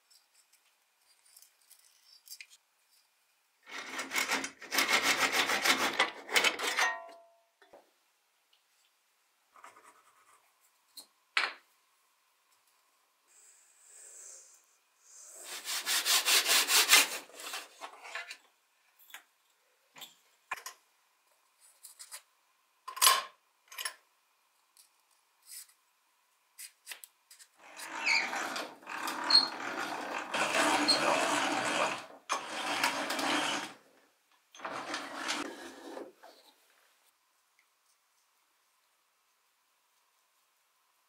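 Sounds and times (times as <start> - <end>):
drill boring into wood: 27.9 - 33.7.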